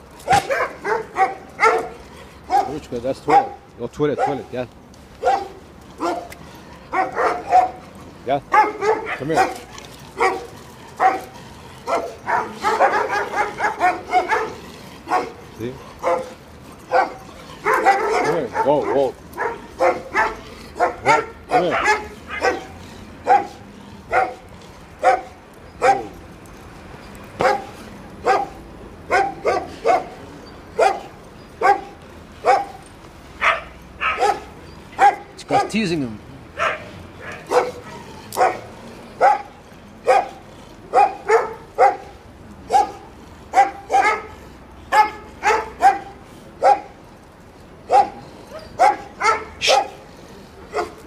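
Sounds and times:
dog barking: 0:00.2 - 0:03.6, 0:04.2 - 0:04.5, 0:05.2 - 0:06.3, 0:06.9 - 0:07.8, 0:08.5 - 0:15.4, 0:16.0 - 0:16.3, 0:16.9 - 0:24.4, 0:25.0 - 0:26.2, 0:27.4 - 0:30.2, 0:30.8 - 0:32.8, 0:33.4 - 0:35.8, 0:36.6 - 0:42.1, 0:42.7 - 0:46.9, 0:47.9 - 0:50.0.

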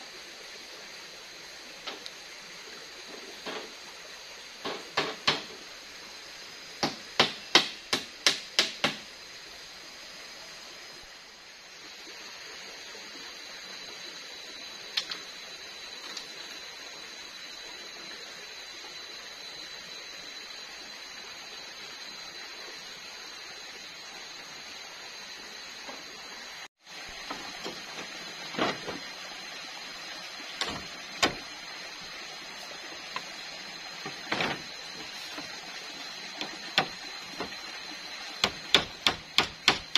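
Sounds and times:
hammer knocking on bamboo: 0:04.6 - 0:05.5, 0:06.8 - 0:09.1, 0:30.6 - 0:31.4, 0:36.4 - 0:37.5, 0:38.4 - 0:39.9.

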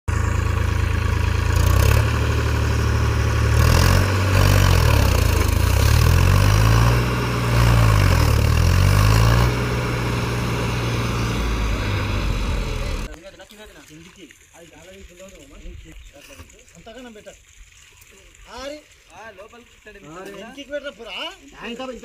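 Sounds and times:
tractor diesel engine revving: 0:00.1 - 0:13.2.

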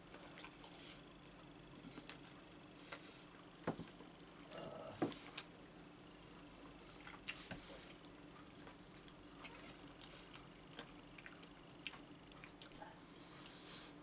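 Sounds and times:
wet clicks and squishes of eating: 0:00.1 - 0:05.5, 0:07.0 - 0:12.8.

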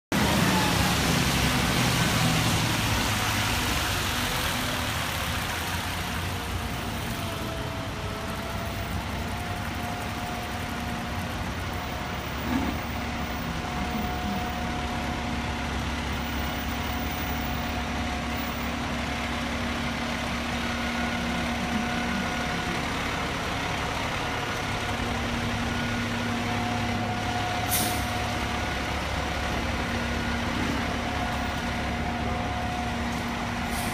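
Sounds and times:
diesel engine idling: 0:00.1 - 0:33.9
air brake hiss: 0:27.7 - 0:28.1.

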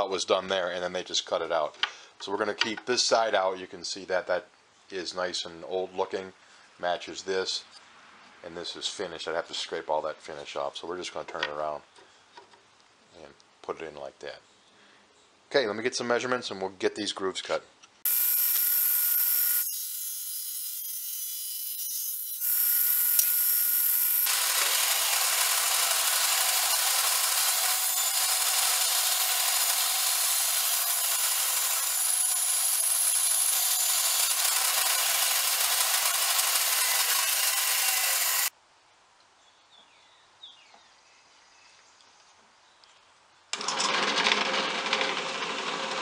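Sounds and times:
bandsaw cutting wood: 0:18.0 - 0:38.5, 0:43.6 - 0:46.0
power saw motor whine: 0:18.1 - 0:21.0, 0:22.3 - 0:38.5, 0:43.5 - 0:46.0.

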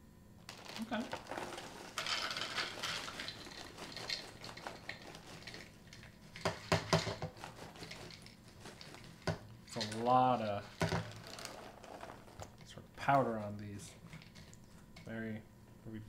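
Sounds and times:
plastic bag crinkling: 0:00.4 - 0:12.7
dry cereal pouring into bowl: 0:00.5 - 0:05.8, 0:06.4 - 0:12.6.

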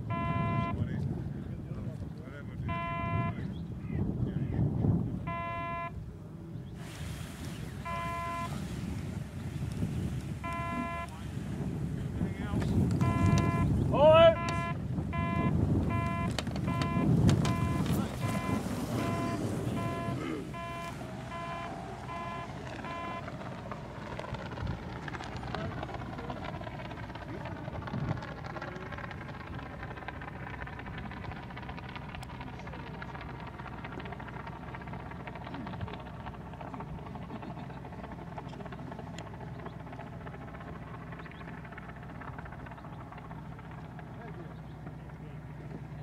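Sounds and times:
distant engine noise: 0:00.0 - 0:46.0
wind buffeting microphone: 0:00.0 - 0:46.0
slow electronic beeps: 0:00.1 - 0:00.7, 0:02.7 - 0:03.4, 0:05.3 - 0:05.9, 0:07.8 - 0:08.6, 0:10.4 - 0:11.2, 0:13.0 - 0:13.7, 0:14.4 - 0:23.4.

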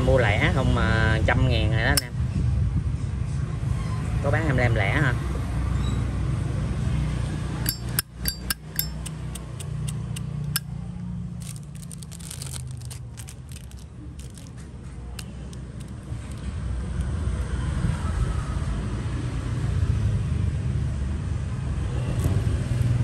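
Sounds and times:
clicking and scraping: 0:07.6 - 0:10.6, 0:11.4 - 0:16.5
metal lighter clicks and clinks: 0:07.6 - 0:10.6.

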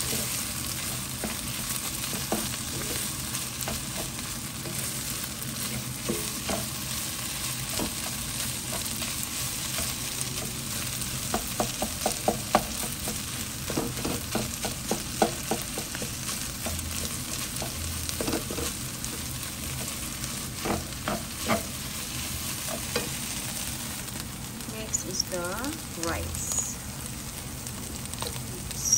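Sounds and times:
food sizzling in a wok: 0:00.0 - 0:28.9
spatula knocking against pan: 0:11.3 - 0:16.9.

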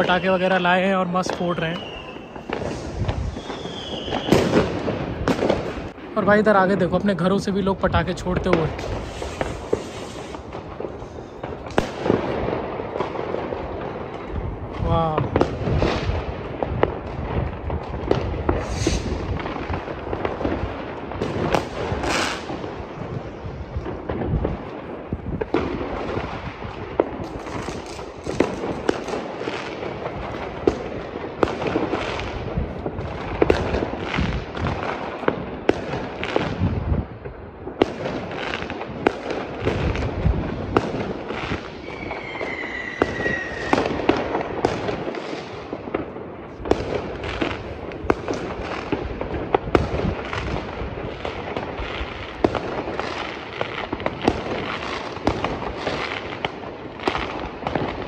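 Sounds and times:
fireworks bangs and crackles: 0:00.0 - 0:58.0
firework whistle falling in pitch: 0:01.6 - 0:02.5, 0:03.3 - 0:04.4, 0:41.8 - 0:43.8.

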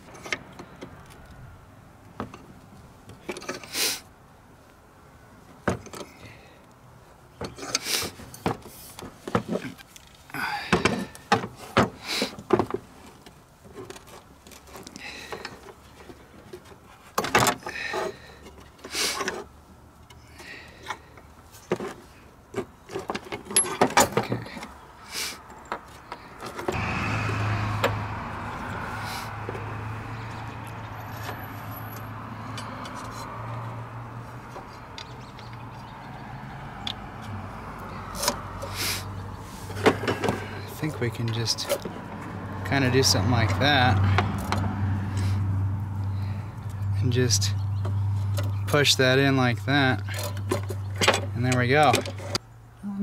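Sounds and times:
hand tools clicking and knocking on metal: 0:07.4 - 0:24.8, 0:30.8 - 0:33.4, 0:49.7 - 0:52.4
engine drone: 0:26.8 - 0:33.6.

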